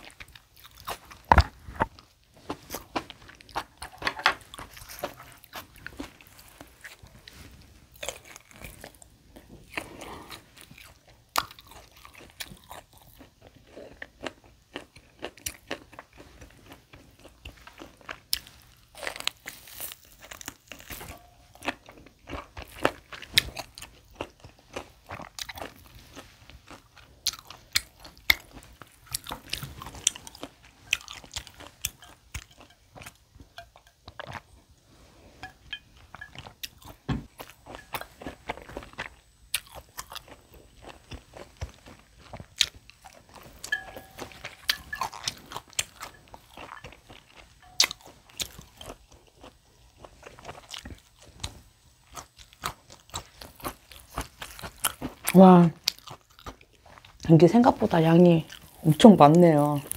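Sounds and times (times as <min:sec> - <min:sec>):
person chewing steak: 0:00.0 - 0:57.3, 0:58.4 - 0:59.9
crunchy clicks and smacks: 0:26.7 - 0:34.5.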